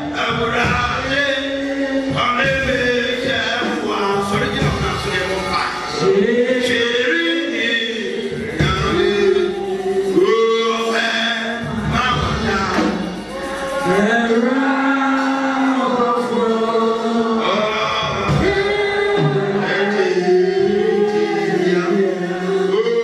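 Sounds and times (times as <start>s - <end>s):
men singing worship song: 0.0s - 23.0s.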